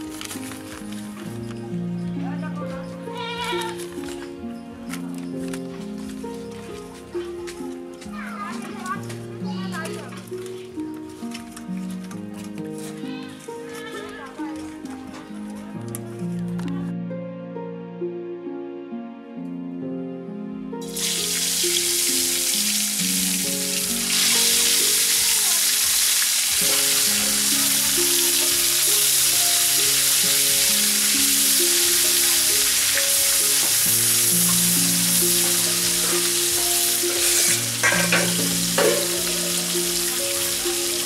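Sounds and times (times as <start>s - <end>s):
background music: 0.0s - 41.0s
fish sizzling in hot oil: 20.8s - 41.0s.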